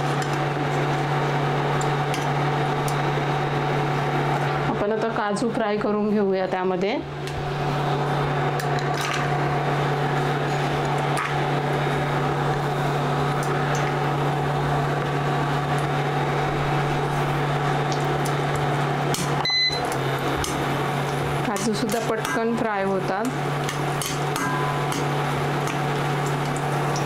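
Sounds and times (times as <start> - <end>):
low electrical hum: 0.0 - 27.0
cashews sizzling in oil: 15.0 - 22.6, 23.3 - 27.0.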